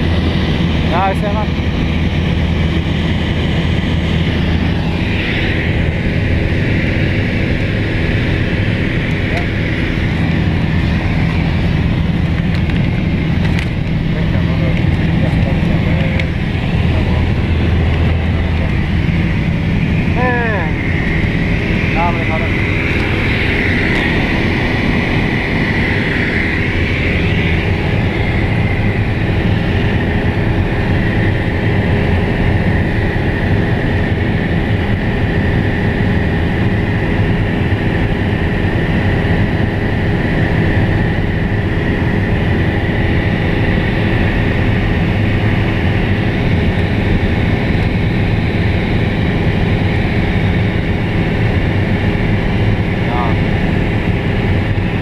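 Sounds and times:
propeller plane engine drone: 0.0 - 55.0.

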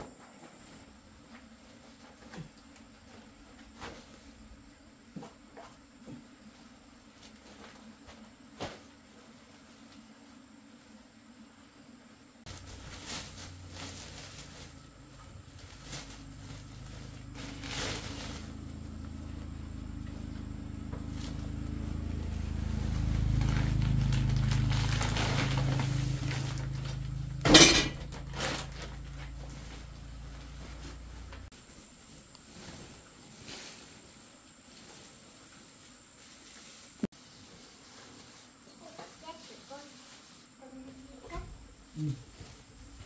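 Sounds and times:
low motor hum: 12.5 - 31.6
objects clinking and knocking: 27.4 - 28.5.

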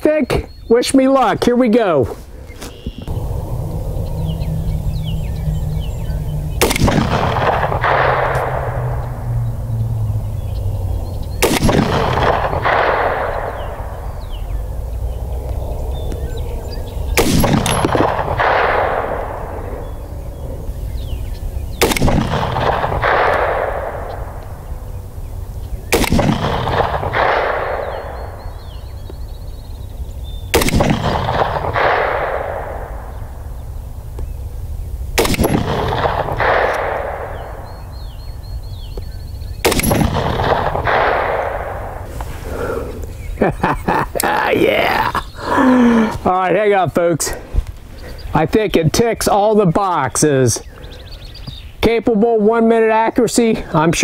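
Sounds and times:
rifle shots: 6.5 - 9.4, 11.4 - 14.3, 17.1 - 20.5, 21.8 - 25.0, 25.8 - 28.9, 30.5 - 33.4, 35.2 - 38.0, 39.6 - 42.2
bullet hitting steel plate: 17.2 - 18.8.

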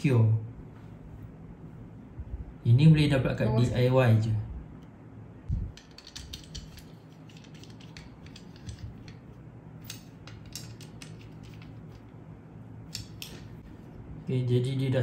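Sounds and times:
metal clicks and scrapes: 5.8 - 9.2, 9.8 - 12.1.

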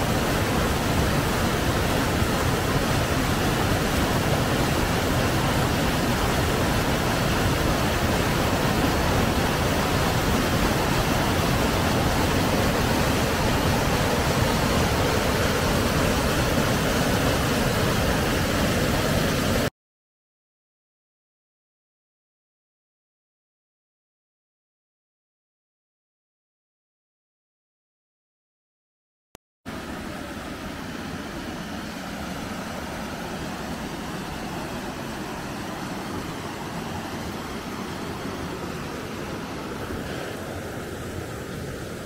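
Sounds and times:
water rushing over rocks: 0.0 - 19.7, 29.7 - 42.0.

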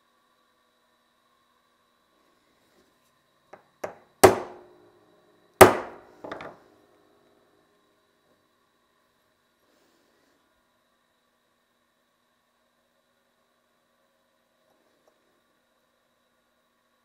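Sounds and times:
hammer blows on metal punch: 3.8 - 4.8.

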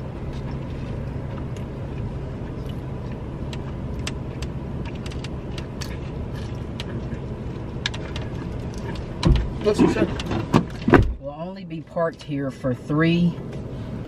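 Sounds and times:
vehicle idling hum: 0.0 - 14.0
small clicks and crinkles: 2.6 - 9.2.

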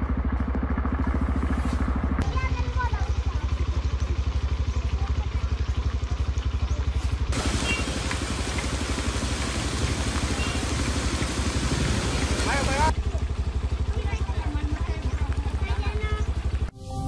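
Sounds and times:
small engine idling: 0.0 - 16.7
floodwater splashing: 7.2 - 12.9
heavy rain hiss: 7.3 - 12.9.

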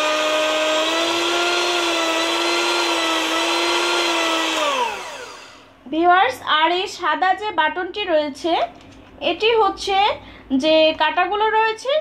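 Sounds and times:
electric hand mixer whining: 0.0 - 5.8.

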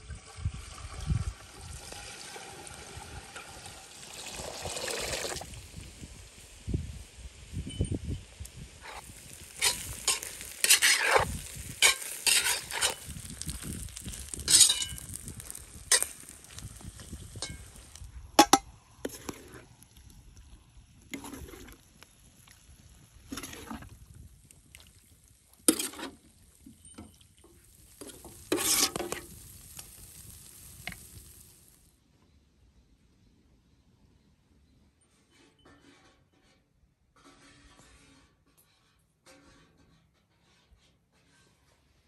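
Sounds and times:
spoon scraping cooking pot: 8.8 - 17.8, 18.4 - 19.7, 21.2 - 21.8, 23.3 - 23.9, 25.7 - 26.2, 28.0 - 29.3.

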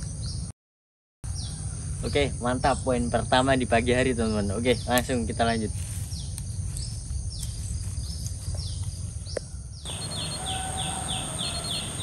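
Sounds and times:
high-pitched insect drone: 1.3 - 12.0
short falling calls: 9.9 - 12.0.

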